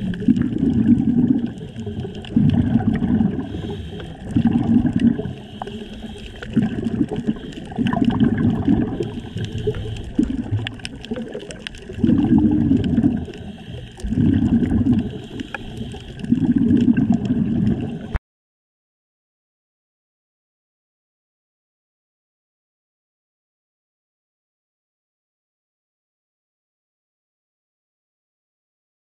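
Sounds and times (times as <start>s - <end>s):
air bubbling underwater: 0.0s - 18.2s.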